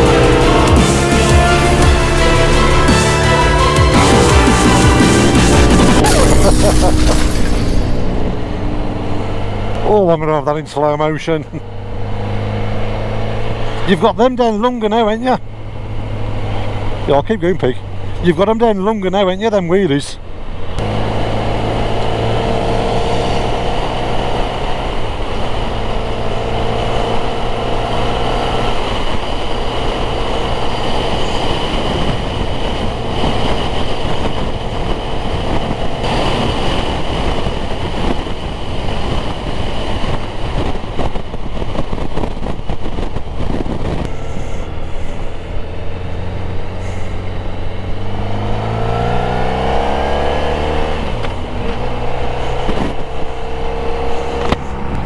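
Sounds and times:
motorcycle engine drone: 0.0s - 55.0s
wind rush on microphone: 20.6s - 55.0s.

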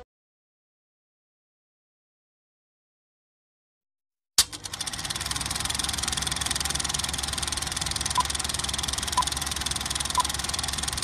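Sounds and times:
film projector clatter: 4.4s - 11.0s.

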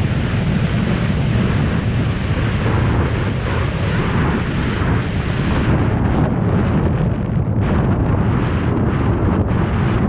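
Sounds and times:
road noise: 0.0s - 6.0s
wind buffeting microphone: 0.0s - 10.0s.

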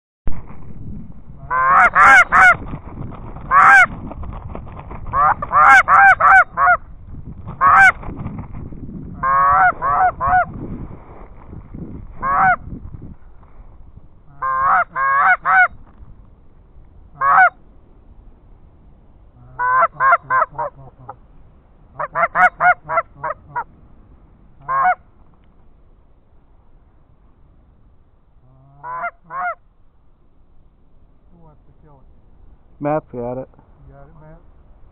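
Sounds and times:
low rumble: 0.3s - 5.6s
geese honking: 1.4s - 2.7s, 3.4s - 3.9s, 5.1s - 6.8s, 7.6s - 8.0s, 9.2s - 10.6s, 12.2s - 12.6s, 14.3s - 15.8s, 17.2s - 17.6s, 19.4s - 21.2s, 21.9s - 23.7s, 24.6s - 25.0s, 28.6s - 29.6s.

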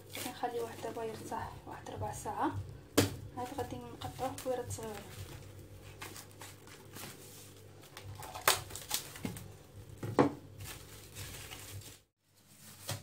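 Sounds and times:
knocks and taps on countertop: 10.0s - 10.4s.

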